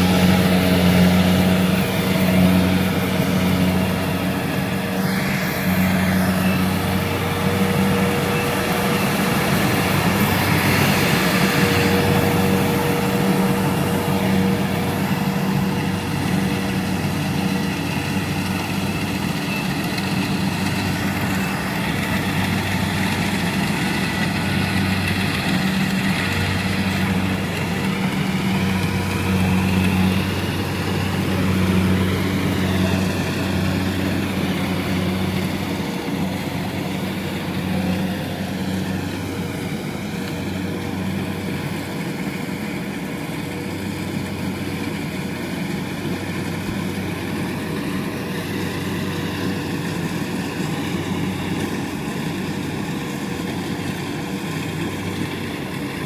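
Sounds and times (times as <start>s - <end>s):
high whine: 0.0s - 44.3s
harvester engine running: 0.0s - 56.0s.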